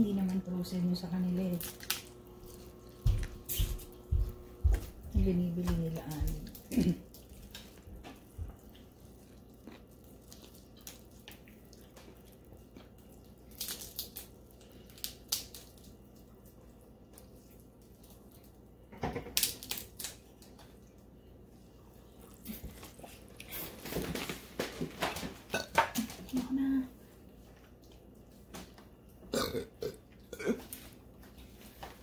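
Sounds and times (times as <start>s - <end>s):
shellfish shells cracking: 1.6s - 2.7s, 12.9s - 16.1s, 19.2s - 20.6s
chewing and sucking: 7.2s - 13.4s.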